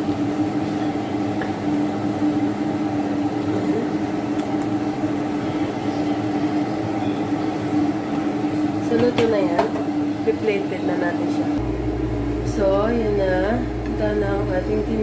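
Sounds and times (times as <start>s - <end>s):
soup boiling in a pot: 0.0s - 10.3s
steady low hum: 0.0s - 15.0s.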